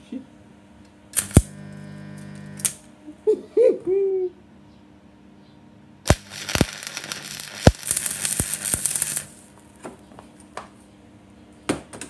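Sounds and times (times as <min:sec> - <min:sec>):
welding arc crackling: 0:01.2 - 0:02.8, 0:06.1 - 0:09.6.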